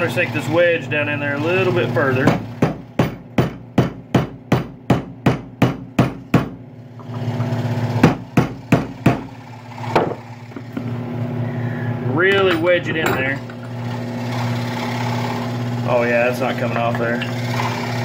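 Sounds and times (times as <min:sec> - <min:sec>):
hammer striking a screwdriver: 0:02.3 - 0:06.6.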